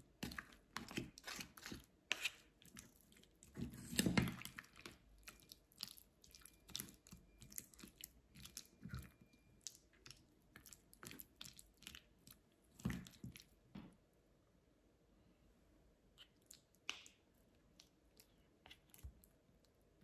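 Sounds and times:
wet squelches of mashing: 0.1 - 13.6.

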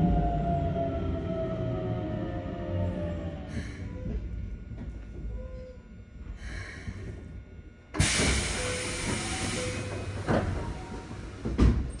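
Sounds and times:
loud hiss of compressed air: 8.0 - 9.9.

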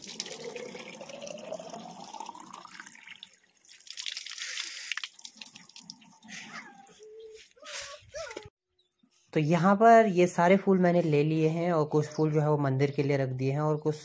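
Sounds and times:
water pouring into a plastic bottle: 0.0 - 6.3
water splashing and dripping: 0.0 - 6.6.

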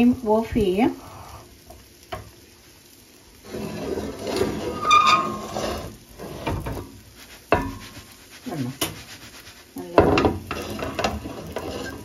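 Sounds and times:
pan scraping on metal grate: 3.4 - 12.0.

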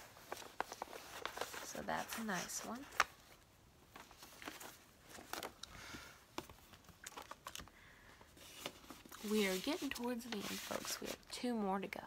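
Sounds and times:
paper rustling: 0.0 - 5.6, 8.3 - 11.3.

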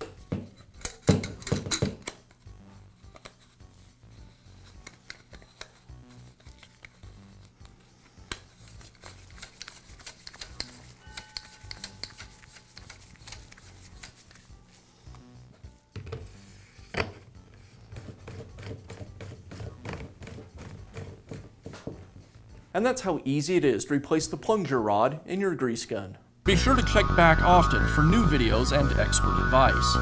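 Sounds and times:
metallic clicks and rubbing: 0.0 - 14.5.

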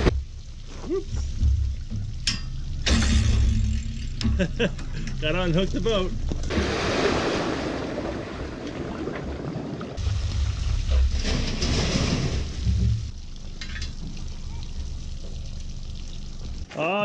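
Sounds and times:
water splashing and churning: 5.2 - 12.9.

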